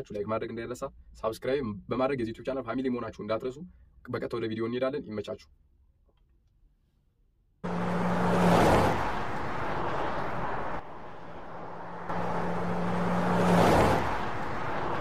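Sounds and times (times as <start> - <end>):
car passing by rushing: 7.6 - 15.0.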